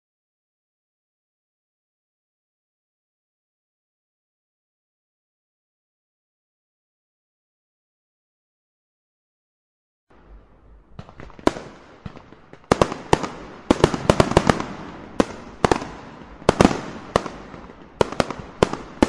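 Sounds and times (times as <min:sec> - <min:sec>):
faint rumble: 0:10.1 - 0:12.7
fireworks bangs: 0:10.2 - 0:19.0.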